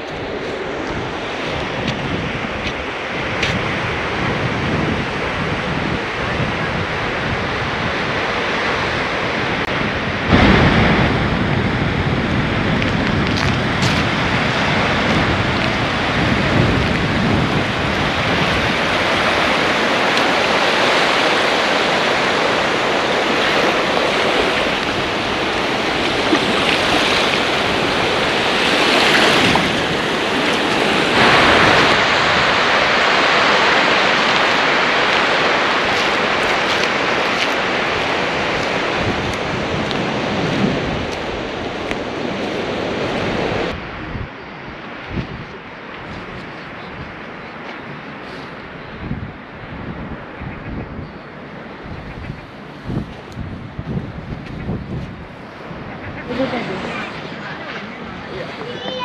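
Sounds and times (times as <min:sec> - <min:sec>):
small waves breaking on sand: 0:00.0 - 0:44.0
wind buffeting microphone: 0:00.0 - 0:59.0.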